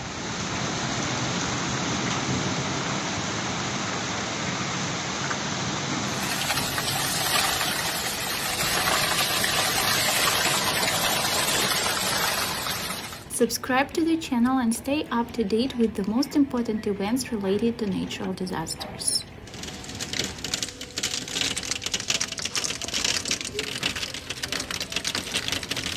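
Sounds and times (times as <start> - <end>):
heavy rain and hail: 0.0 - 13.3, 19.4 - 25.9
hailstones pattering on ground: 6.1 - 13.3, 19.4 - 25.9.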